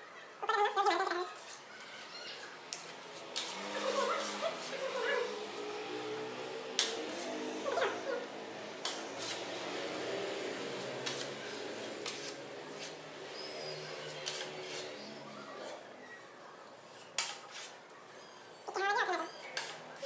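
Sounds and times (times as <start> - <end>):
putty knife scraping on wall: 10.8 - 15.8, 16.9 - 17.8.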